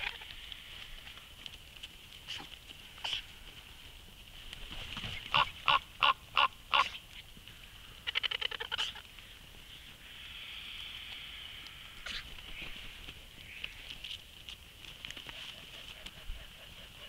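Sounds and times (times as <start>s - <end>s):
raven rattling call: 0.0s - 1.3s, 5.2s - 14.2s
faint steady high hiss: 0.0s - 17.0s.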